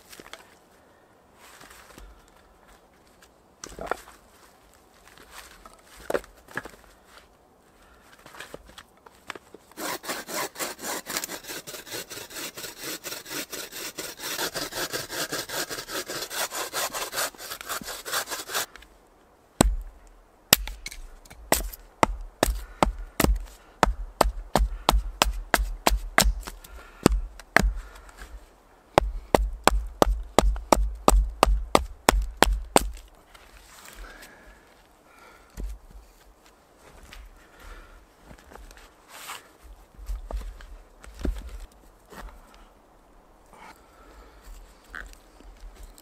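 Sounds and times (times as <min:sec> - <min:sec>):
hand saw cutting wood: 0:09.8 - 0:18.7, 0:21.5 - 0:27.8
hatchet striking wood: 0:19.6 - 0:27.8, 0:29.0 - 0:33.0.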